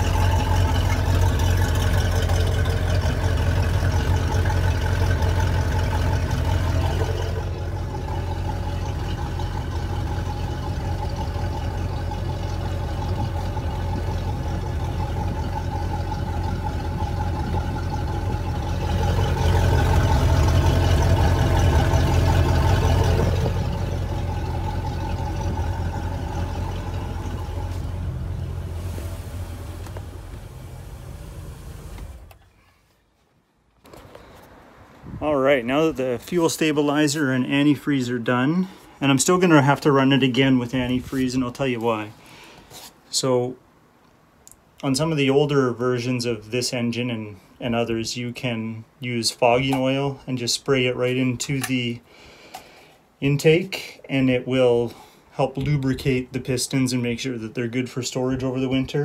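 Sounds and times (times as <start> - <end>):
boat engine running: 0.0 - 32.4.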